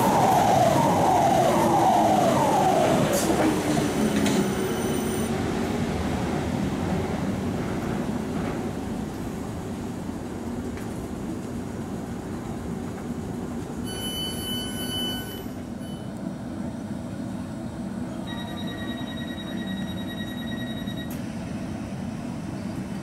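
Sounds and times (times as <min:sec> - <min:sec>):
electric train humming: 0:00.0 - 0:23.0
door open beep: 0:13.8 - 0:16.1, 0:18.3 - 0:21.2.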